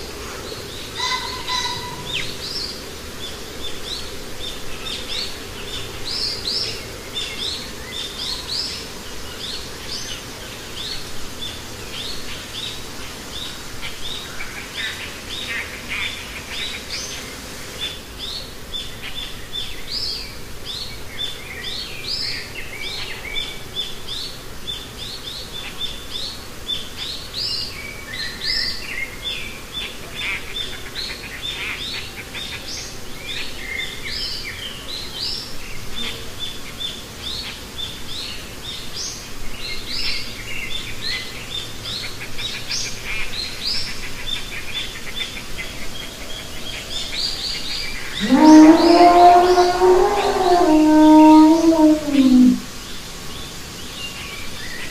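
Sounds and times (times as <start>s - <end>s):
birds chirping: 44.8s - 52.7s.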